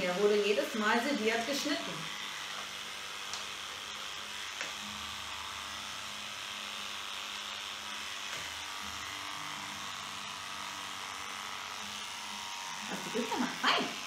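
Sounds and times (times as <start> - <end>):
electric clippers running: 0.0 - 14.0
clippers click: 2.5 - 3.6, 4.5 - 4.8.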